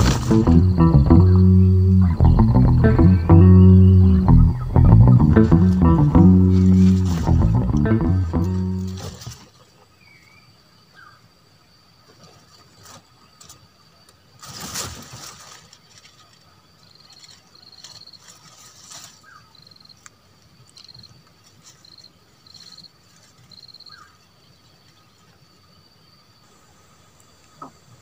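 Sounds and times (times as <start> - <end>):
insect buzzing chirps: 0.0 - 9.3
insects droning: 0.0 - 28.0
bird chirps: 0.3 - 7.8.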